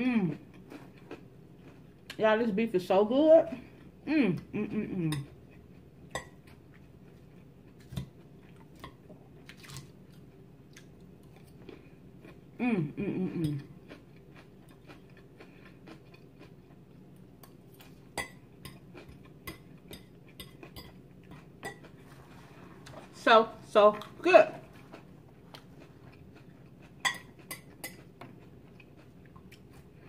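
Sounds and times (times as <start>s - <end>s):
soft chewing: 0.2s - 2.2s, 3.6s - 23.2s, 23.9s - 30.0s
person humming: 4.1s - 5.2s, 12.6s - 13.6s.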